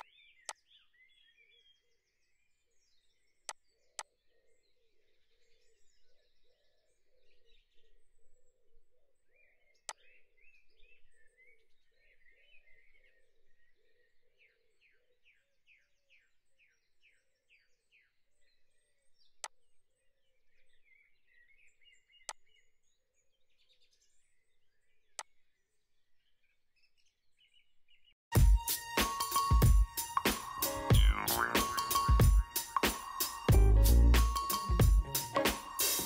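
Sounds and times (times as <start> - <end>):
faint birdsong: 0.0 - 28.2, 29.0 - 36.0
electronic music: 28.3 - 36.0.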